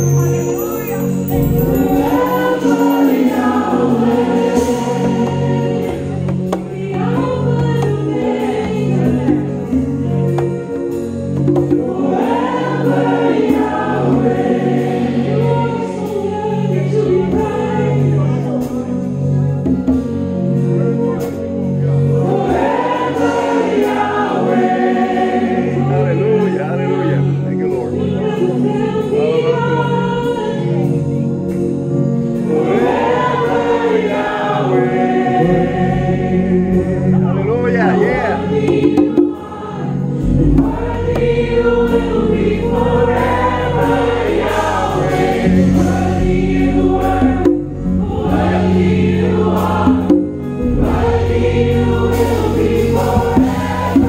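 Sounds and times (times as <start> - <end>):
voices singing together: 0.0 - 10.7, 11.4 - 19.0, 22.0 - 31.2, 32.3 - 54.0
band playing worship music: 0.0 - 54.0
pulsing low notes: 0.8 - 4.0.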